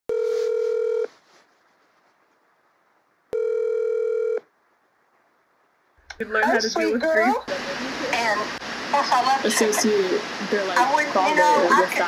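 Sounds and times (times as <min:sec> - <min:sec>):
telephone ringback tone: 0:00.1 - 0:01.1, 0:03.3 - 0:04.4.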